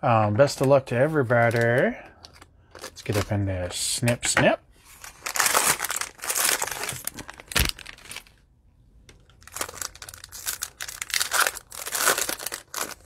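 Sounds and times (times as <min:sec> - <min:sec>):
plastic wrapper crinkling: 0:00.5 - 0:03.4, 0:04.9 - 0:08.4, 0:09.1 - 0:13.0.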